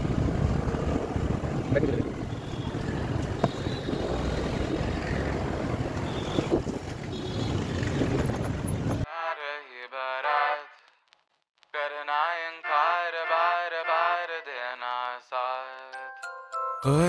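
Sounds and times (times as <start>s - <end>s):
wind buffeting microphone: 0.0s - 9.0s
scooter engine and road noise: 0.0s - 9.1s
song with man singing: 16.8s - 17.0s.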